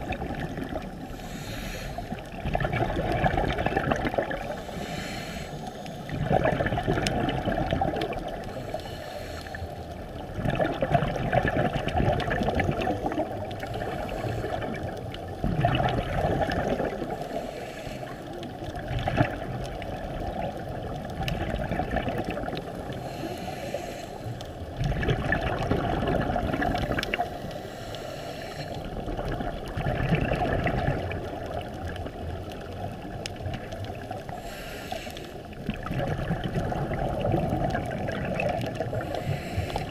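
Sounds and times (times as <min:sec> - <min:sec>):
underwater exhaled bubbles: 0:00.0 - 0:39.9.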